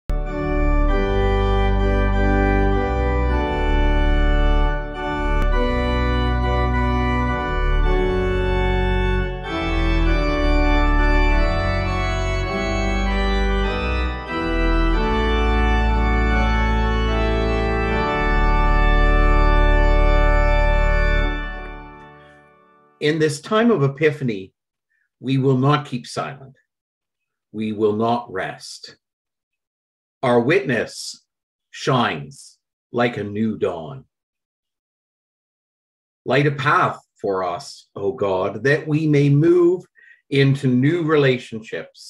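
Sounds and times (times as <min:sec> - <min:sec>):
organ playing sustained chords: 0:00.1 - 0:23.2.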